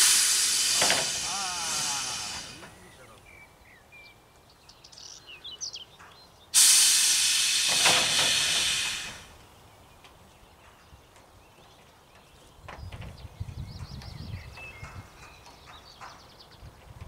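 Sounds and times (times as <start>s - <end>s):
compressed air hissing: 0.0s - 3.0s, 6.6s - 9.4s.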